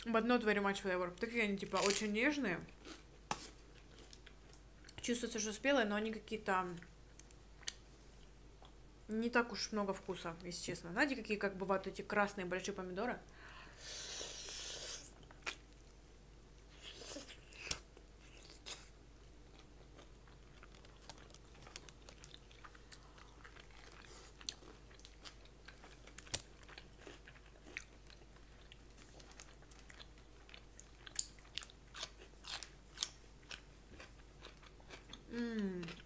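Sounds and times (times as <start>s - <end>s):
person chewing food: 2.8s - 5.0s, 14.3s - 16.0s, 16.6s - 36.0s.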